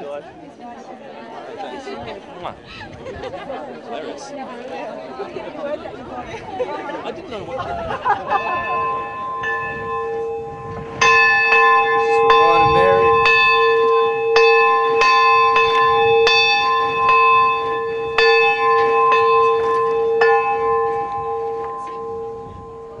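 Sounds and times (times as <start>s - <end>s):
church bell ringing: 8.2s - 23.0s.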